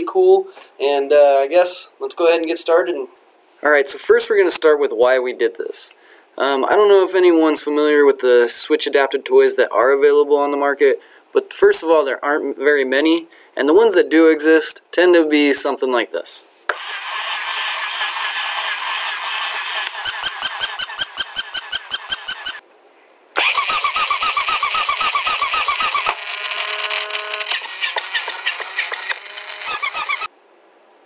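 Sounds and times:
toy dog whirring and squeaking: 16.7s - 22.6s, 23.4s - 30.3s
toy bunny chirping: 19.7s - 22.6s, 23.4s - 26.3s, 27.4s - 30.3s.

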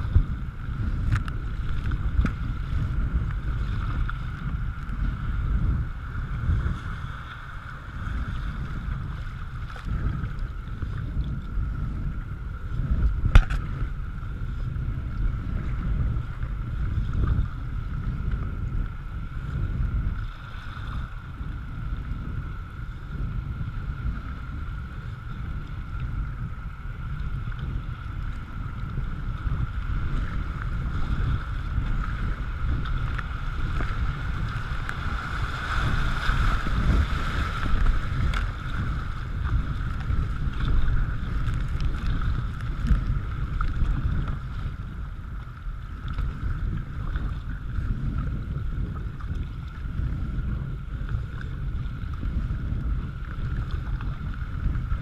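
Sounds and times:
wind buffeting microphone: 0.0s - 55.0s
paddle strokes splashing: 24.0s - 49.8s
rushing river water: 27.1s - 44.7s.

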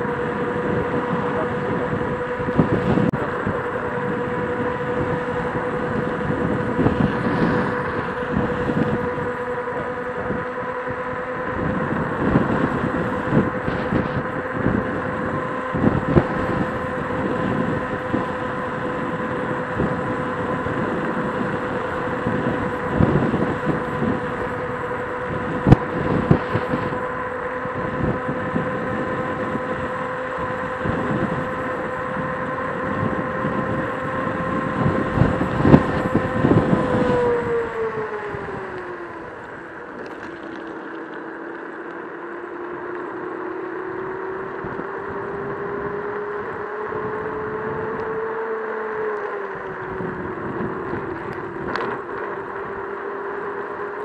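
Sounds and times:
electric scooter motor whining: 0.0s - 54.0s
road rumble: 0.0s - 54.0s
wind: 0.0s - 54.0s.

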